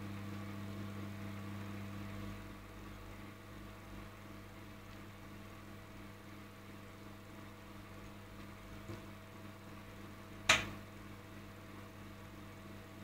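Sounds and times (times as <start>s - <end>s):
microwave oven humming: 0.0s - 13.0s
sharp click: 10.5s - 10.7s.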